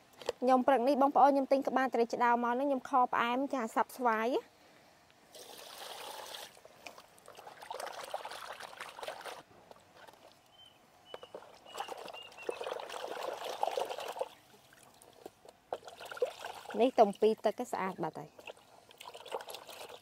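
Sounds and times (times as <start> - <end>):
water pouring and splashing: 5.3 - 10.5, 11.1 - 20.0.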